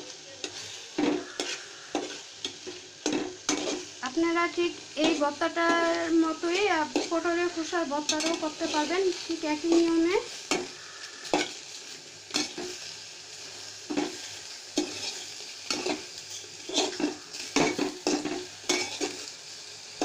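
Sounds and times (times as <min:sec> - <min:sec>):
low steady sizzle: 0:00.0 - 0:20.0
spoon scraping metal pot: 0:01.0 - 0:02.2.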